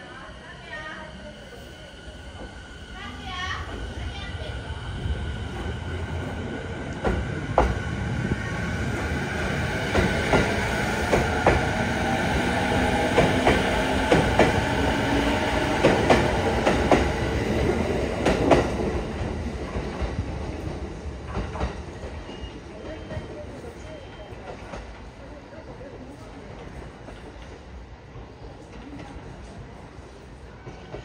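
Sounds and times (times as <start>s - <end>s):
train rumble: 0.0s - 31.0s.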